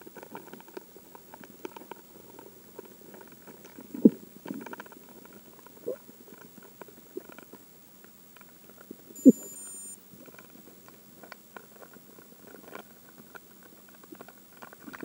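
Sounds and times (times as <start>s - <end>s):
electronic beep underwater: 9.2s - 10.0s.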